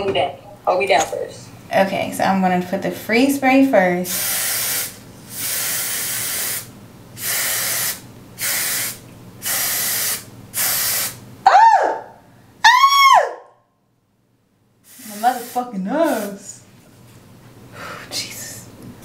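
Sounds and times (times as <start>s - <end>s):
aerosol spray hissing: 4.1s - 11.2s, 14.9s - 16.5s.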